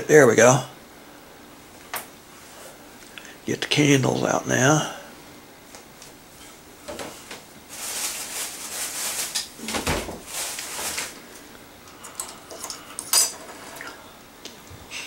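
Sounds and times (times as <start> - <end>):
packaging crinkling and rustling: 6.9 - 11.5.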